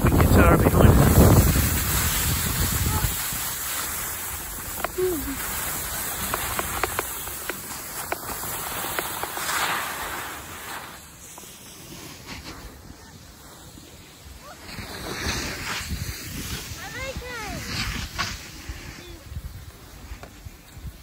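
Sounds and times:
wind on microphone: 0:00.0 - 0:07.7, 0:14.3 - 0:21.0
skis sliding over snow: 0:00.0 - 0:21.0.

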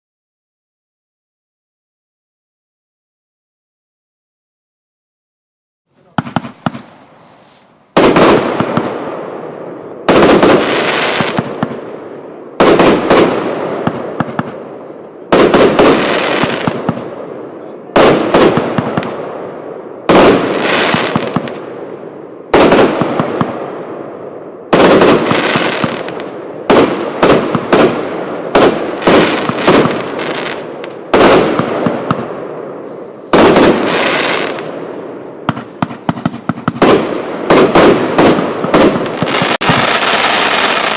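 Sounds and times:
firework battery shots: 0:06.0 - 0:09.0, 0:24.7 - 0:34.8, 0:35.5 - 0:40.9.

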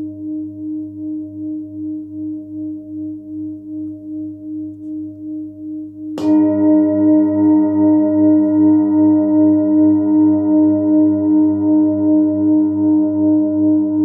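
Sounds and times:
singing bowl ringing: 0:00.0 - 0:14.0
mallet striking singing bowl: 0:06.2 - 0:07.8.

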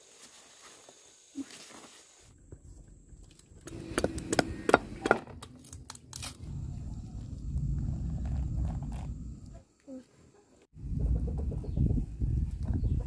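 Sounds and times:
low rumble: 0:03.7 - 0:09.6.

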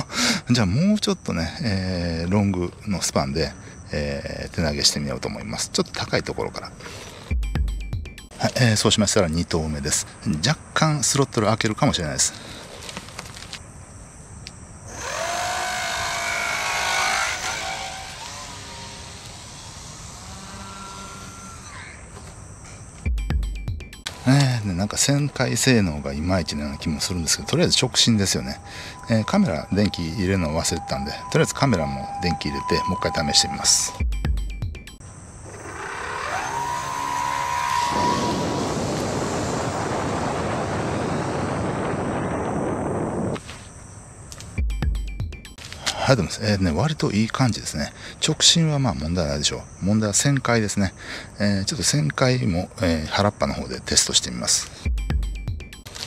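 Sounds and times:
rc plane motor whining: 0:06.7 - 0:07.4, 0:14.9 - 0:22.7, 0:35.4 - 0:42.0
rushing air and propeller: 0:35.4 - 0:43.6.

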